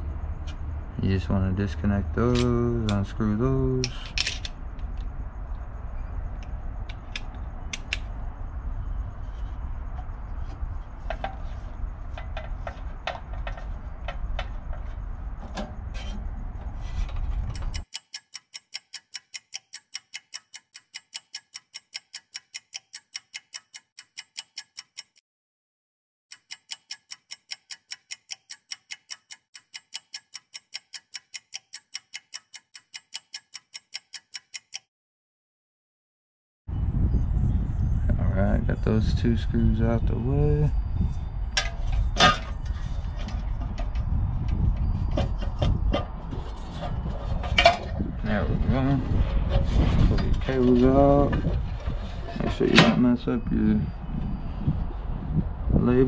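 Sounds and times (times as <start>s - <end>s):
clock ticking: 17.5s - 25.2s, 26.3s - 34.9s
wind rumble on microphone: 36.7s - 56.0s.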